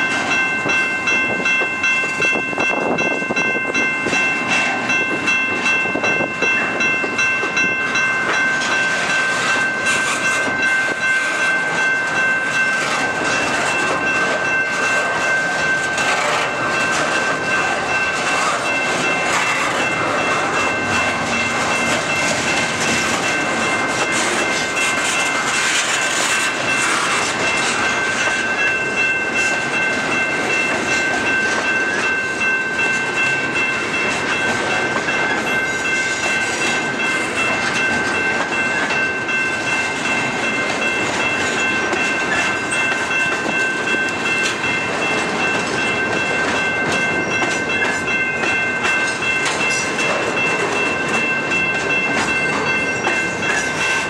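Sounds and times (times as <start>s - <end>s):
train wheels clacking over rail joints: 5.7s - 54.0s.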